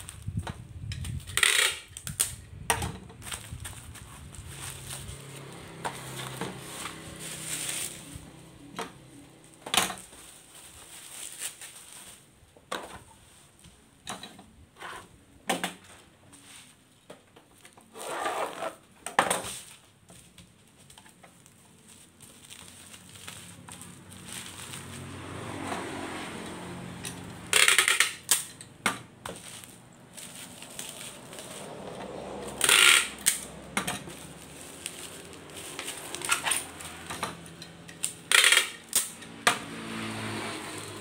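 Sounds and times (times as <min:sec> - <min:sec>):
bubble wrap crinkling: 0:00.0 - 0:00.4, 0:03.2 - 0:12.4, 0:19.5 - 0:26.0, 0:29.3 - 0:39.2.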